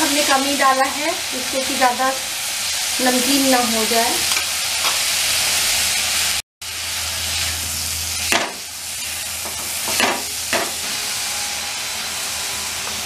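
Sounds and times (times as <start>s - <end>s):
vegetables sizzling in a wok: 0.0s - 13.0s
spatula scraping and knocking pan: 9.4s - 11.0s.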